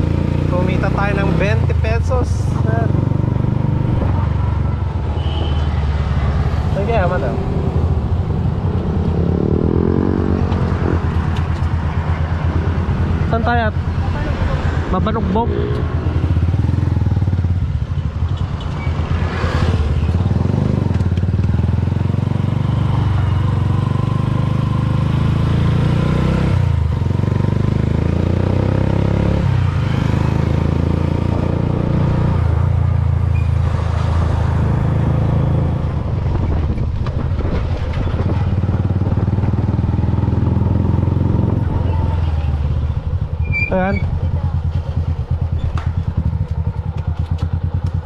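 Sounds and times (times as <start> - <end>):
motorcycle engine running: 14.9 - 25.5, 36.0 - 48.0.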